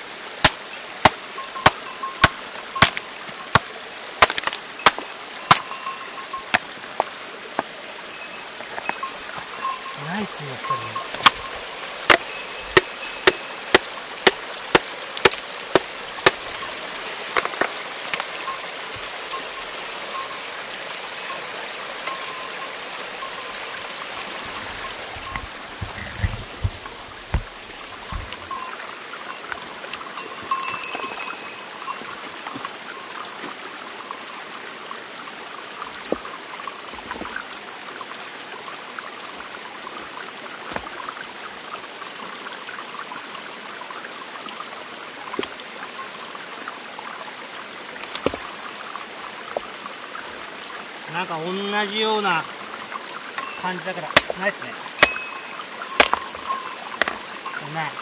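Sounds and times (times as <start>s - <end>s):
stream running: 0.0s - 58.0s
hammer striking stone: 0.4s - 5.8s, 11.0s - 11.4s, 12.1s - 16.4s, 54.2s - 54.4s, 55.0s - 55.4s, 56.0s - 57.2s.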